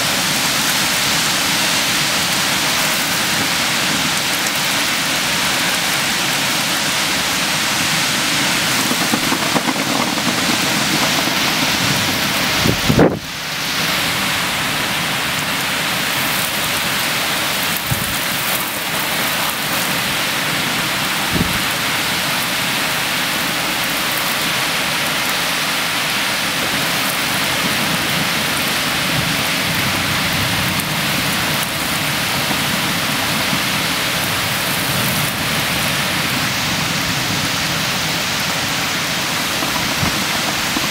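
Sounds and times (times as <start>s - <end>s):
heavy rain pouring: 0.0s - 40.9s
thunder cracks: 5.2s - 14.7s, 38.3s - 40.9s.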